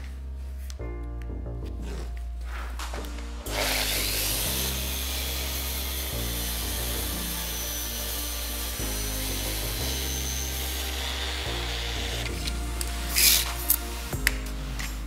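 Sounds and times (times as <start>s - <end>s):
background music: 0.0s - 15.0s
orbit sander hissing: 3.5s - 15.0s.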